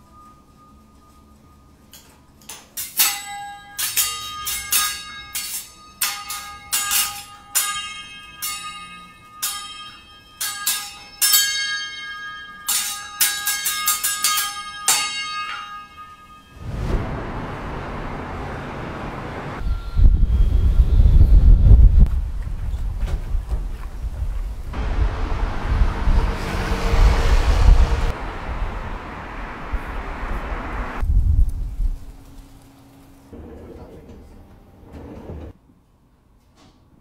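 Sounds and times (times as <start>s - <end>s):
spatula and knife clanging: 1.9s - 16.4s
low wind-like rumble: 16.6s - 32.6s.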